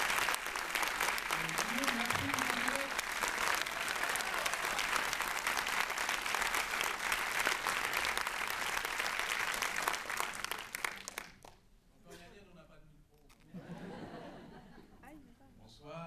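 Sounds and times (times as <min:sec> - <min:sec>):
audience applauding: 0:00.0 - 0:11.6.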